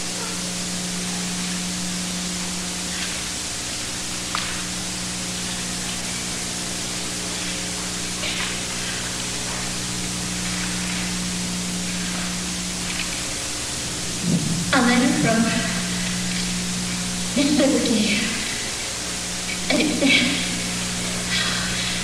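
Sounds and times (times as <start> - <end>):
low hum: 0.0 - 22.0
videotape hiss: 0.0 - 22.0.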